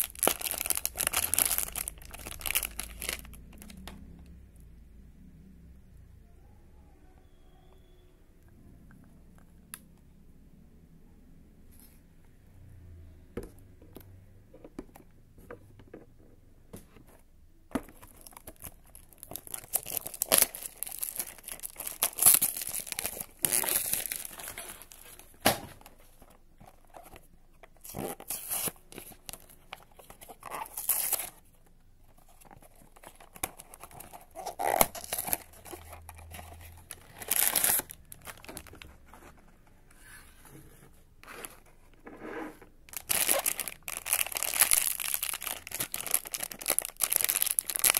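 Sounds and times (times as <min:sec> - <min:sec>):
cardboard box tearing and crinkling: 0:00.0 - 0:03.2, 0:19.2 - 0:25.1, 0:30.4 - 0:31.4, 0:33.0 - 0:38.8, 0:42.9 - 0:47.9.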